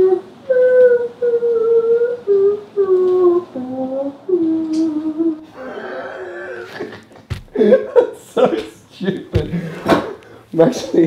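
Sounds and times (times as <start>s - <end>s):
man humming a slow tune: 0.0s - 6.8s.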